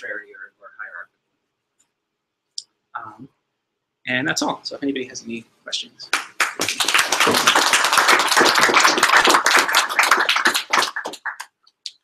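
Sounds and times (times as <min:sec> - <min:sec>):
audience applauding: 0:06.1 - 0:11.5.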